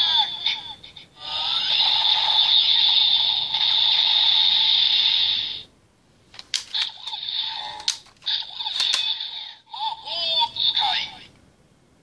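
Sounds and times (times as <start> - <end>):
toy electronic sound effect: 1.2 - 5.6, 6.7 - 9.7
plastic clicks: 6.3 - 7.2, 7.8 - 9.1.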